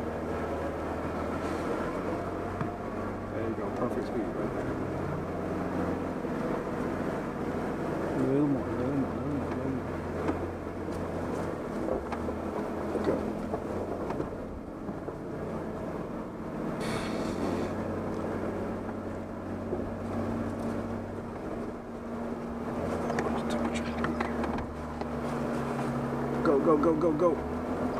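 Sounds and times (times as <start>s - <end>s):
engine running at low revs: 0.0s - 27.9s
brief hissing rush: 16.8s - 17.7s.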